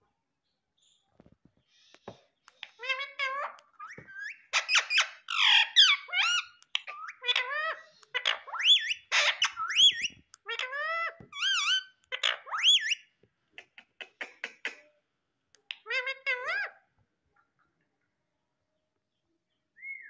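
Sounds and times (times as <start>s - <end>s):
parrot squawks and whistles: 2.8s - 10.8s, 11.4s - 13.1s.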